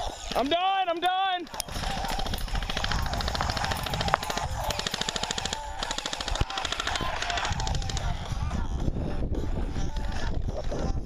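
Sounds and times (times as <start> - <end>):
airsoft guns firing full auto: 1.5 - 8.3.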